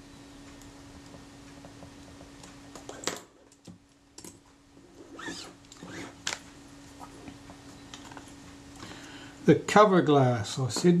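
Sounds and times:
wavering squeak: 5.1s - 6.2s.

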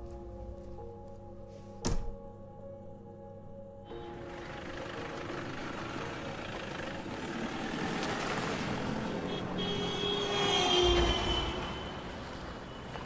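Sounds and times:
car driving past: 4.7s - 13.0s.

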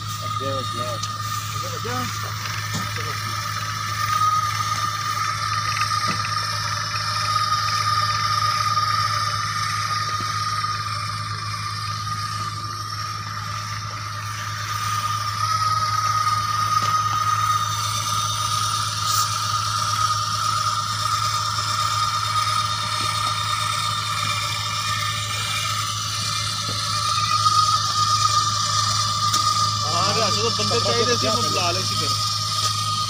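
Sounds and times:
welding machine whining: 0.0s - 33.0s.

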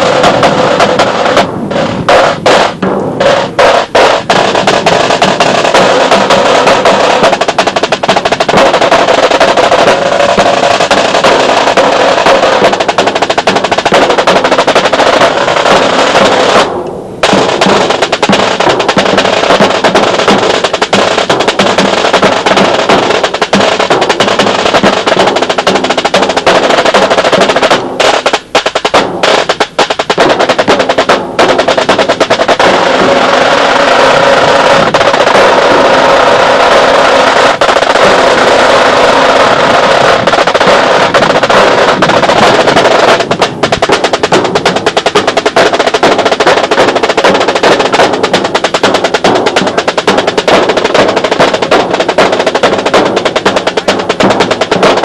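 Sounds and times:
snare and tenor drum cadence: 0.0s - 55.0s.

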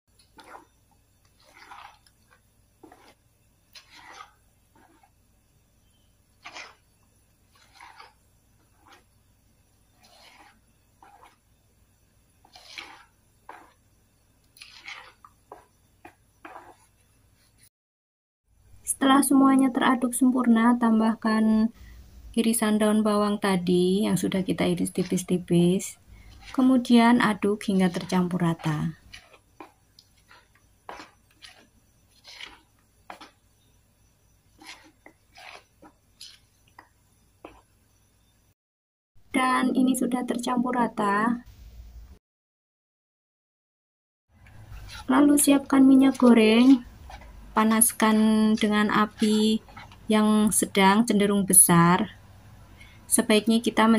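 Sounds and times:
spoon squelching in thick batter: 0.2s - 17.5s, 24.1s - 37.7s, 44.4s - 50.3s.

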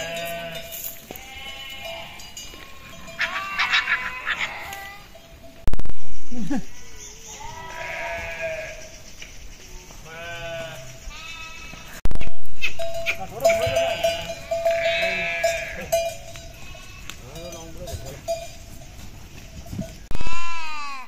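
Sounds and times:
sheep bleating: 0.0s - 5.2s, 7.4s - 8.9s, 10.0s - 12.0s, 12.7s - 17.7s, 20.1s - 21.0s.

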